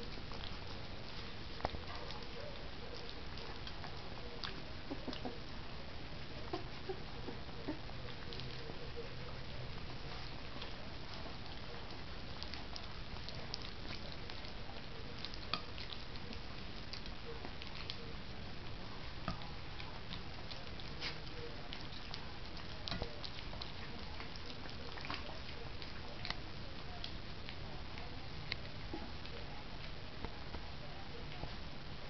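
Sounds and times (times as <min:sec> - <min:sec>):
puppies lapping and slurping: 0:00.0 - 0:30.0
steady background hiss: 0:00.0 - 0:32.0.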